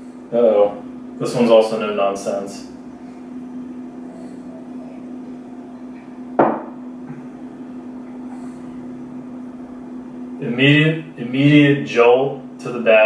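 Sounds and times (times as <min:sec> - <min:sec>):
low room hum: 0:00.0 - 0:13.0
glass set down on table: 0:06.4 - 0:06.8.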